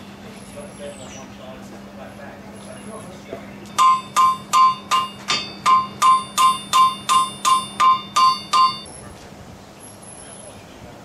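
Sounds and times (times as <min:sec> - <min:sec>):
hammer striking iron on anvil: 0:03.7 - 0:08.9.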